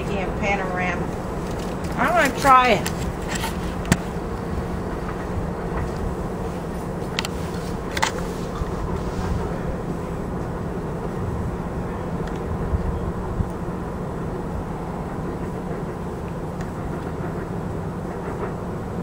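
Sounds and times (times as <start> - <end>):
distant train rumbling: 0.0 - 19.0.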